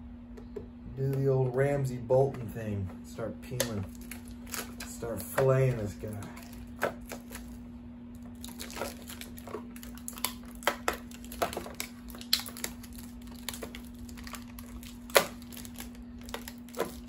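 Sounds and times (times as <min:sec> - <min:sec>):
plastic film peeling crinkle: 0:03.5 - 0:17.0.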